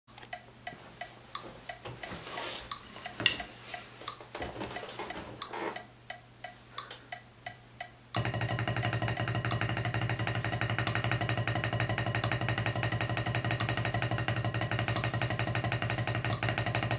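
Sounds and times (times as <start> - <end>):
metronome clicking: 0.1 - 16.9
drumstick strokes on practice pad: 0.4 - 16.9
drumsticks clattering: 1.4 - 5.9.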